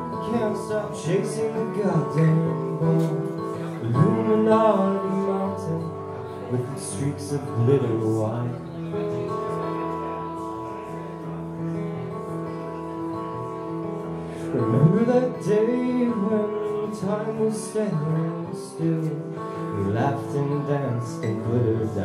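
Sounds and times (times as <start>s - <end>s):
man singing: 0.0s - 9.8s, 14.3s - 22.0s
acoustic guitar: 0.0s - 22.0s.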